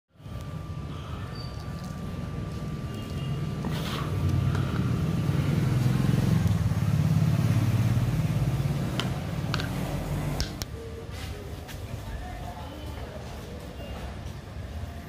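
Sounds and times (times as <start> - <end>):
passing motor vehicle engine: 2.0 - 10.7.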